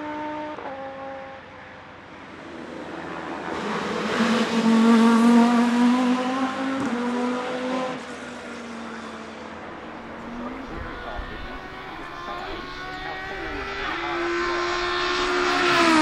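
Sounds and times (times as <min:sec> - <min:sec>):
race car engine passing: 0:02.1 - 0:16.0.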